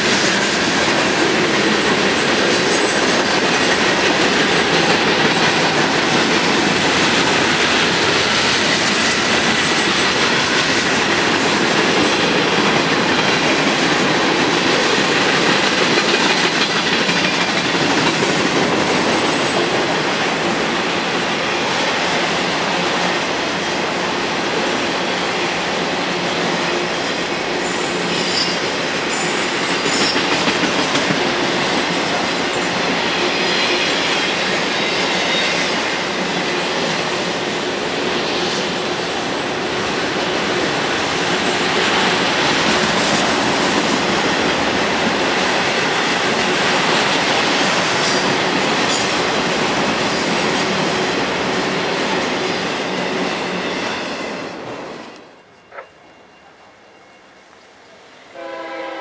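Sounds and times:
train wheels rumbling on rails: 0.0 - 55.8
high wheel squeals: 27.6 - 30.3.

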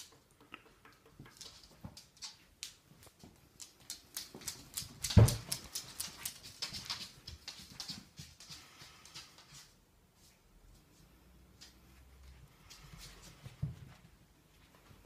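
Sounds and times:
puppy claws clicking on wood floor: 0.0 - 9.6.

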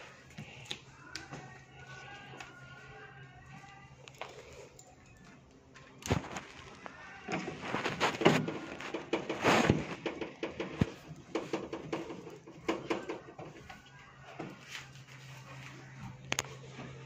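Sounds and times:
hands knocking and scraping panels: 7.4 - 13.8.

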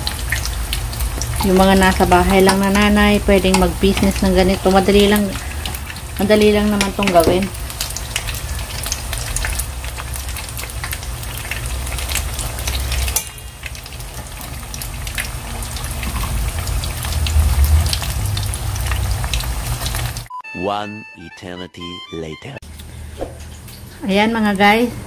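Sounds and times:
food deep-frying in hot oil: 0.0 - 20.3
low rumble: 14.7 - 19.4.

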